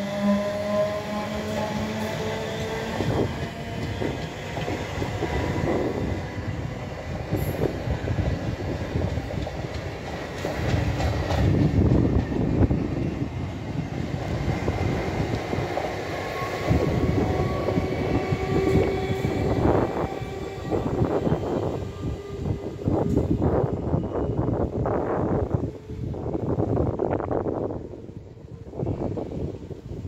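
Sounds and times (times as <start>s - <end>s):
train wheels rumbling on rails: 0.0s - 30.0s
clacks over rail joints: 9.0s - 12.5s.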